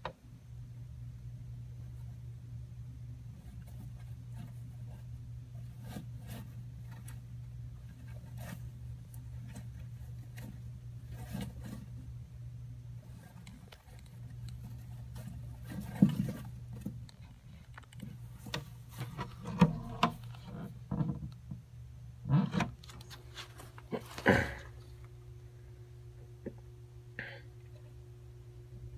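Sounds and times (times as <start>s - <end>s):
rustling in loose substrate: 12.9s - 20.8s, 22.8s - 25.1s.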